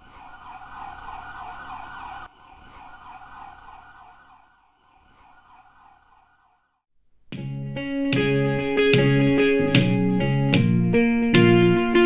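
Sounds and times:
emergency siren warbling: 0.0 - 6.8.

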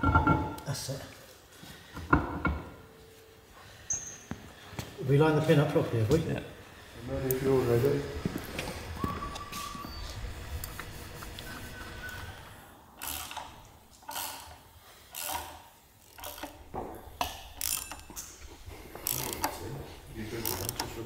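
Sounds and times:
ratchet wrench clicking: 13.0 - 16.6, 17.2 - 19.6, 20.3 - 21.0.

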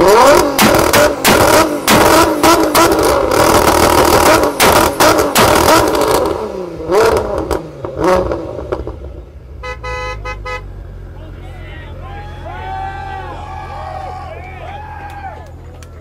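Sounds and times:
car engine revving: 0.0 - 12.0
exhaust pops and bangs: 0.3 - 6.4
horn beeping: 9.5 - 11.2.

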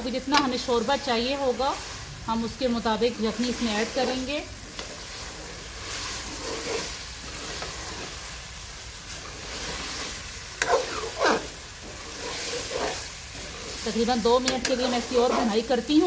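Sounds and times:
chicken sizzling in a pan: 0.0 - 16.0
metal spoon scraping a pan: 3.1 - 8.4, 9.0 - 16.0.

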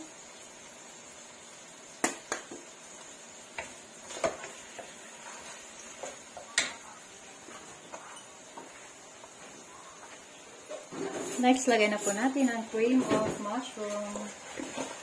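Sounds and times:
wooden spatula scraping a wok: 4.0 - 6.2, 7.4 - 15.0.

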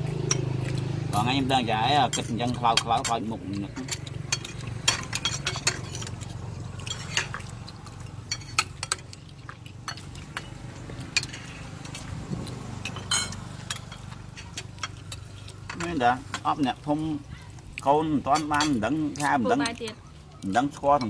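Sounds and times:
metal spoon scraping a plate: 3.8 - 7.4, 8.3 - 9.0, 11.1 - 11.6.

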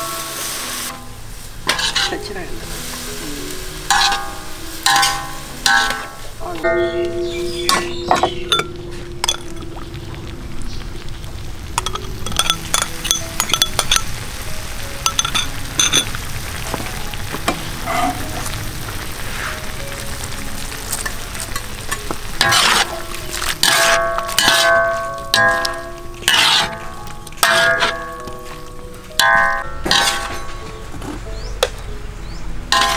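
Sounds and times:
food sizzling in a wok: 0.0 - 31.5, 32.2 - 32.9
metal spatula clinking and scraping: 1.7 - 2.3, 3.9 - 6.2, 11.8 - 14.2, 15.0 - 16.2, 22.4 - 28.6, 29.2 - 30.8.

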